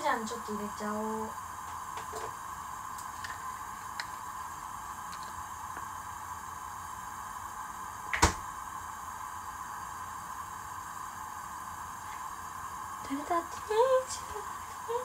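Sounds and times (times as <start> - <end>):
steady cooking hiss: 0.0 - 15.0.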